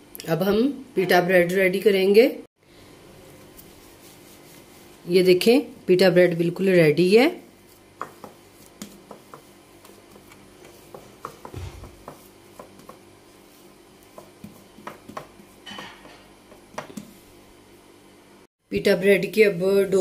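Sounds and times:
hands kneading dough: 3.2s - 5.7s, 7.3s - 17.5s.

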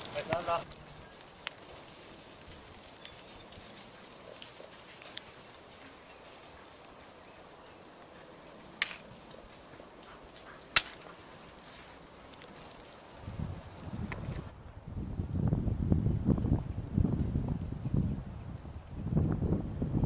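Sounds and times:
rustling in undergrowth: 0.0s - 14.5s
twigs snapping: 0.0s - 14.5s.

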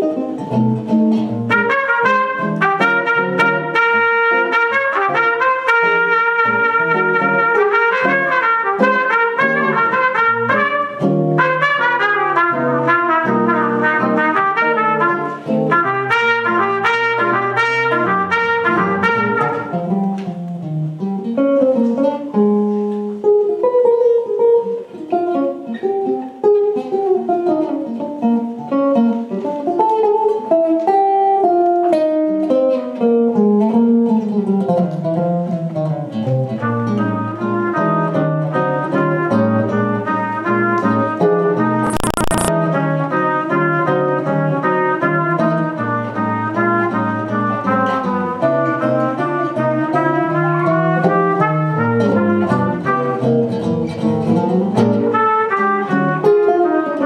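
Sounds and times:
electric guitar playing: 0.0s - 57.0s
jazz trumpet: 0.8s - 20.2s, 36.4s - 57.0s.

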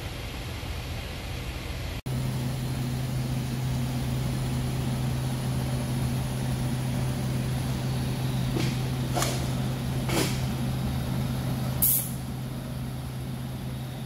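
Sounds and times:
welding arc humming and hissing: 2.1s - 14.0s.

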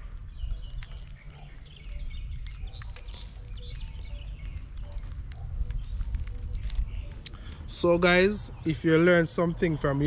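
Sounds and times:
faint bird chirps: 0.0s - 7.6s
low rumble on microphone: 0.0s - 8.7s.

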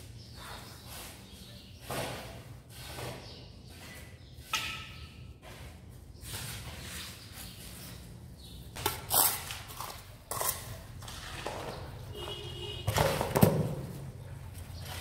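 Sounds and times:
knocks and thuds of tiling: 11.4s - 14.1s.

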